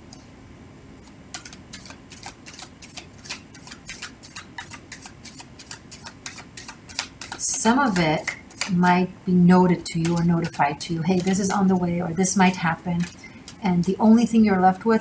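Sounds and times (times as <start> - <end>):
cards being shuffled: 1.0 - 8.8.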